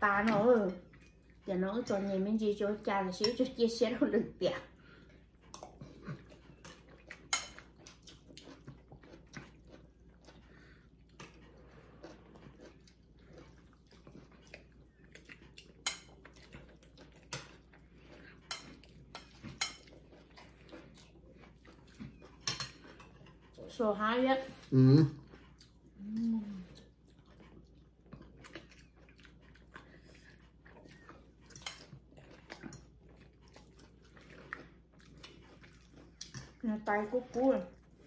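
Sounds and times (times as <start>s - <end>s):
chewing and slurping: 0.1s - 38.0s
cutlery scraping ceramic bowls: 22.1s - 23.5s.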